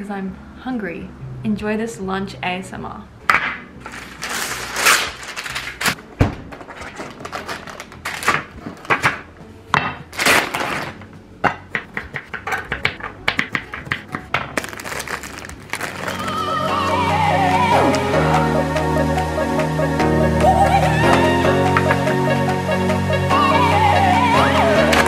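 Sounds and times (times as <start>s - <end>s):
plastic wrap crinkling: 3.8s - 8.9s, 14.0s - 16.5s
baking paper rustling: 3.8s - 9.3s, 10.1s - 11.1s, 12.2s - 16.4s.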